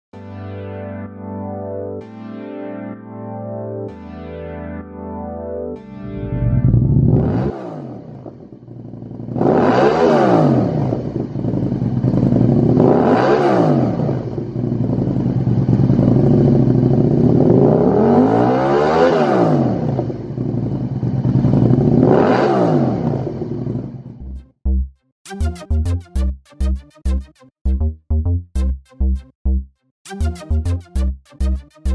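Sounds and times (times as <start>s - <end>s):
motorcycle engine idling and revving: 6.1s - 24.4s.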